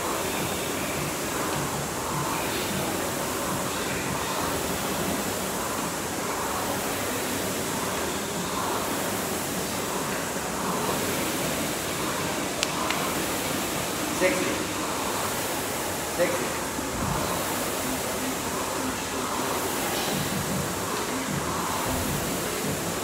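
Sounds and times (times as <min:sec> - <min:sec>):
rowing machine flywheel whooshing: 0:00.0 - 0:23.0.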